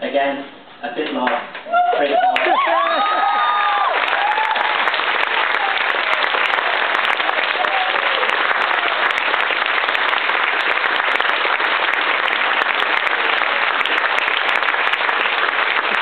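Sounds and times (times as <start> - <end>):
crowd applauding: 2.0 - 16.0.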